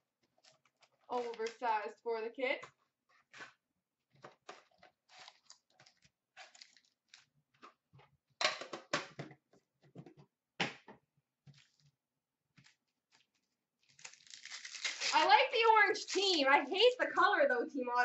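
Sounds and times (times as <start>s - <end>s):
foil packs crinkling: 1.0s - 1.6s, 5.1s - 7.3s, 12.6s - 16.5s.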